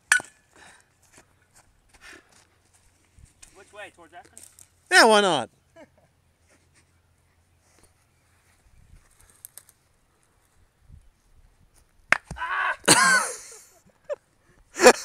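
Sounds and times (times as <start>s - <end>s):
person shouting loudly: 12.4s - 12.9s.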